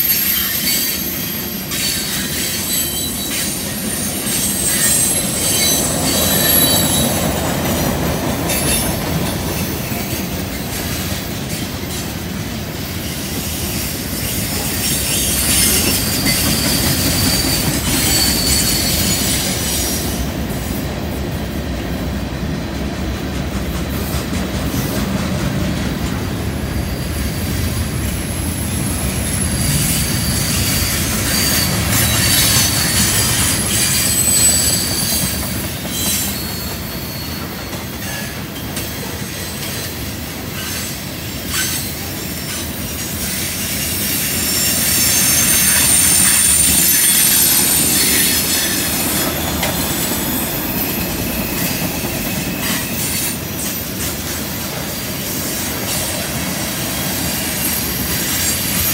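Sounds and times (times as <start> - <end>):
high-pitched wheel squeal: 0.0 - 7.3, 13.0 - 20.2, 28.4 - 38.4, 40.5 - 56.3
train wheels rumbling on rail: 0.0 - 58.9.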